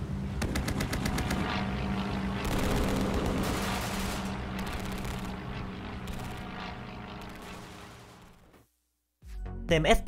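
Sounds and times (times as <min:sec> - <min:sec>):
machine-gun fire: 0:02.4 - 0:08.6.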